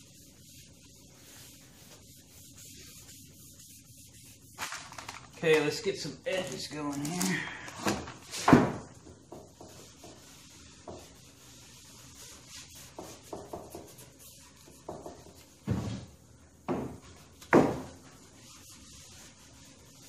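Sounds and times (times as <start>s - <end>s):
rag wiping wood: 0.0s - 4.6s, 8.3s - 15.6s, 16.9s - 20.0s.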